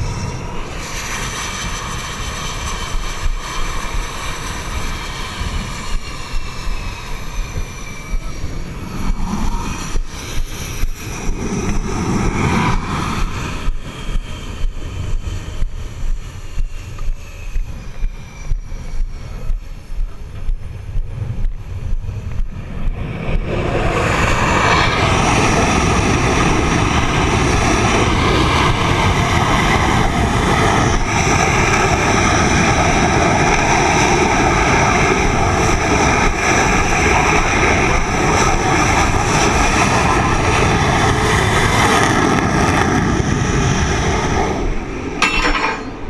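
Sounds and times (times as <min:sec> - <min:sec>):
jet engine noise: 0:00.0 - 0:46.0
steady whine: 0:00.0 - 0:46.0.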